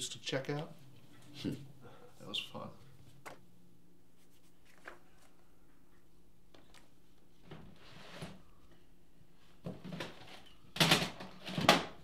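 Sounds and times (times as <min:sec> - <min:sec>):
items knocking in plastic bin: 0:09.6 - 0:12.0.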